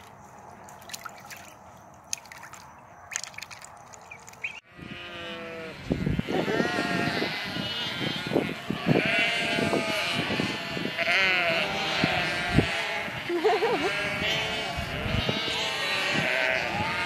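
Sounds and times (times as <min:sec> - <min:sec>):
sheep bleating: 0:04.7 - 0:17.0.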